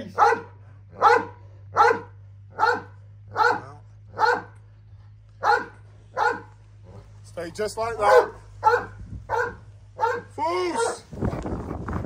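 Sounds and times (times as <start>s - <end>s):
dog barking: 0.0s - 4.6s, 5.4s - 7.1s, 8.0s - 11.0s.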